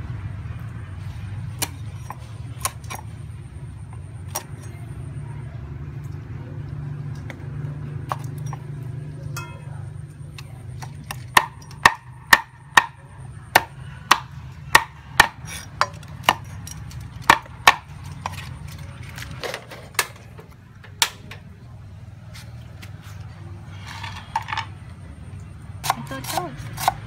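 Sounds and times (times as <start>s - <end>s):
meat cleaver chopping meat: 10.8s - 13.0s, 13.6s - 16.6s, 17.2s - 18.4s, 25.8s - 27.0s.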